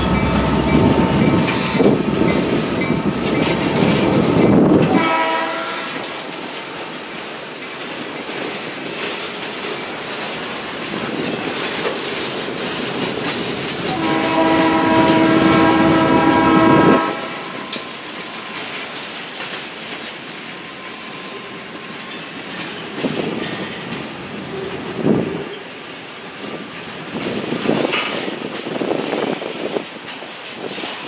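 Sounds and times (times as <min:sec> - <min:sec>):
train horn blast: 0:00.0 - 0:03.3, 0:04.8 - 0:06.1, 0:13.9 - 0:17.9
train wheels clattering on rails: 0:00.0 - 0:31.0.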